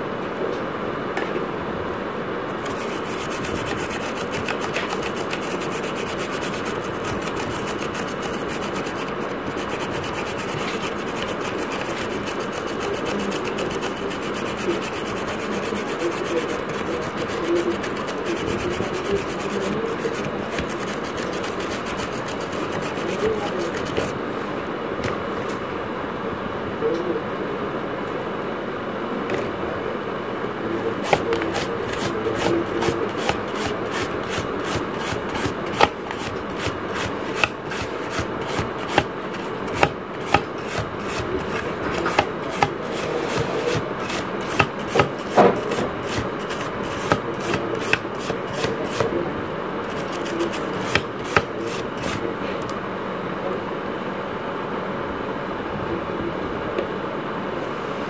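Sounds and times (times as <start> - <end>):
steady background noise: 0.0 - 58.0
brush scrubbing circuit board: 2.6 - 24.2, 30.9 - 49.2, 49.8 - 52.2.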